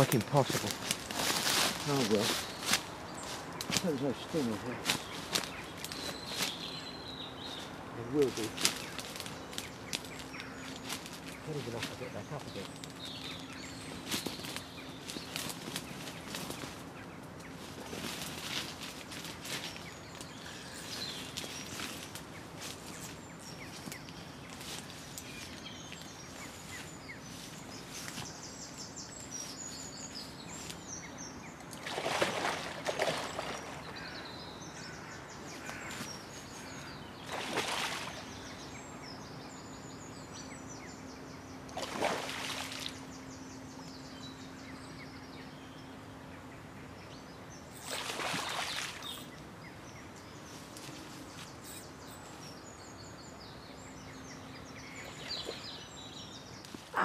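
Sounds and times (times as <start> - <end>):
small birds calling: 0.0 - 57.0
fish splashing at surface: 31.8 - 33.6.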